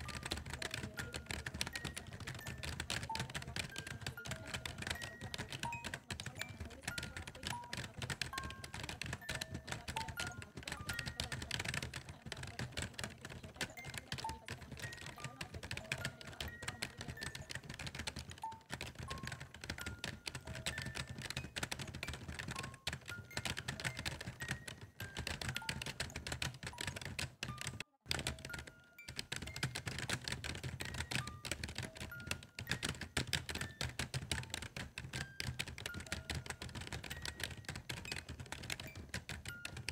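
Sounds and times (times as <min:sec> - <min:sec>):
rapid clicking and tapping: 0:00.0 - 0:39.9.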